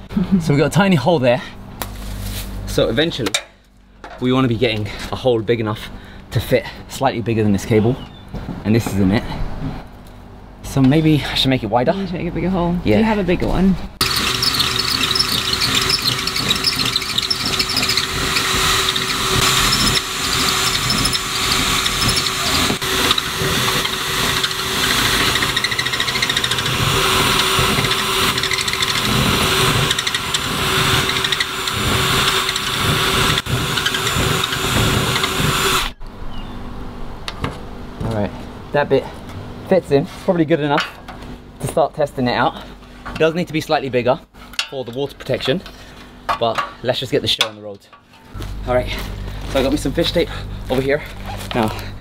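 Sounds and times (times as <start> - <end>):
cordless drill boring into wood: 14.0 - 36.0.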